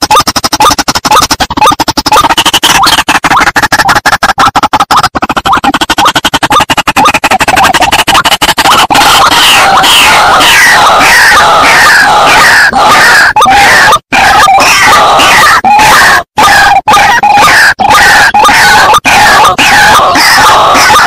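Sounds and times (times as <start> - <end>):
croaking bird notes: 0.0 - 21.0.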